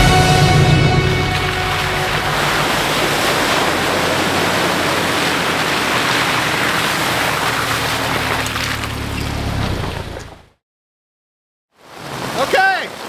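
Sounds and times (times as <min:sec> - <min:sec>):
low hum: 0:00.0 - 0:06.6
rushing water: 0:00.0 - 0:10.5, 0:11.8 - 0:13.0.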